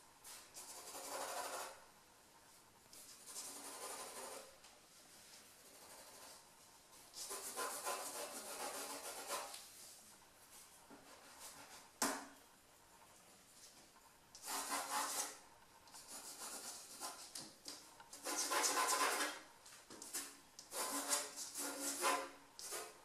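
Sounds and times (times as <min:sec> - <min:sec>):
pencil scratching on paper: 0:00.6 - 0:01.8, 0:03.0 - 0:04.5, 0:05.5 - 0:06.4, 0:07.2 - 0:09.6, 0:14.4 - 0:15.4, 0:16.0 - 0:17.4, 0:18.2 - 0:19.4, 0:20.0 - 0:23.0.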